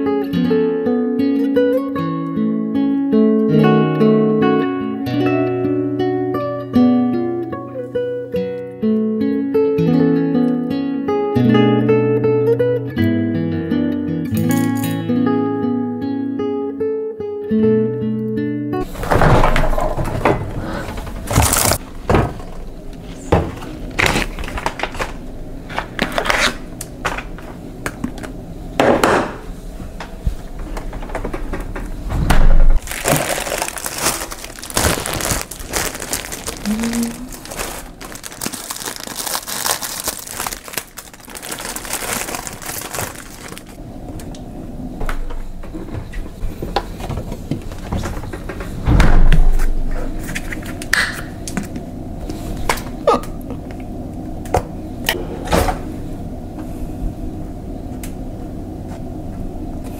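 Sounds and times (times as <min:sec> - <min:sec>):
plastic packaging crinkling: 0:21.2 - 0:21.8, 0:23.8 - 0:25.2, 0:32.8 - 0:43.8.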